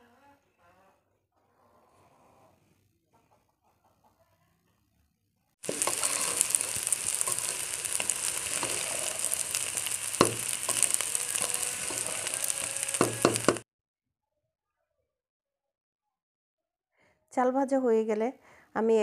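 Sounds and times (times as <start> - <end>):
rice sizzling in oil: 5.6 - 13.6.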